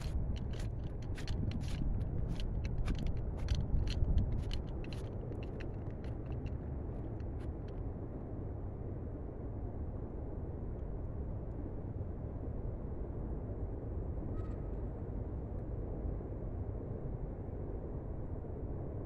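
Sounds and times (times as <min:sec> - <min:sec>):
footsteps crunching in snow: 0:00.0 - 0:06.4
steady low rumble: 0:00.0 - 0:19.0.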